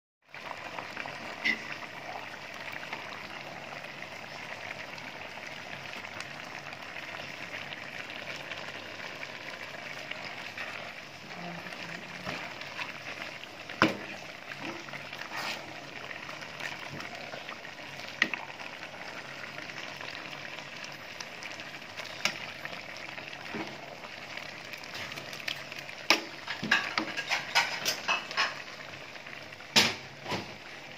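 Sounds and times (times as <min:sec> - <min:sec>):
pot boiling and bubbling: 0:00.2 - 0:30.9.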